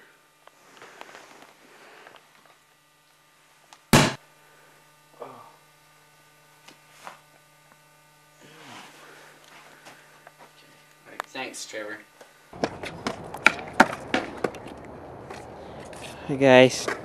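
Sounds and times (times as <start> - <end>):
low electrical hum: 0.0 - 17.0
loud sharp bang: 3.9 - 4.2.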